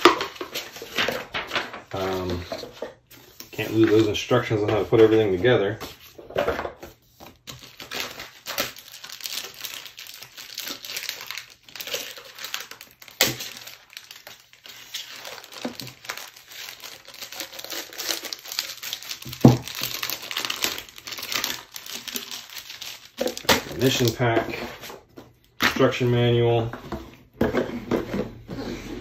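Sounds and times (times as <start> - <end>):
plastic wrap crinkling: 7.4 - 26.6.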